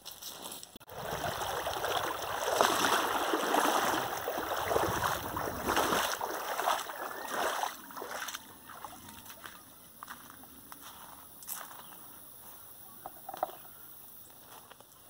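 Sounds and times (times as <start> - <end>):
footsteps wading through water: 0.2 - 12.0.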